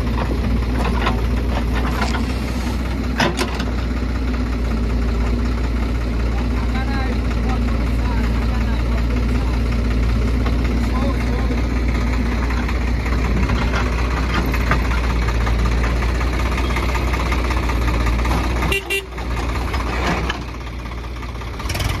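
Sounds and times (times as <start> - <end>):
diesel engines running: 0.0 - 22.0
horn toot: 18.7 - 19.1.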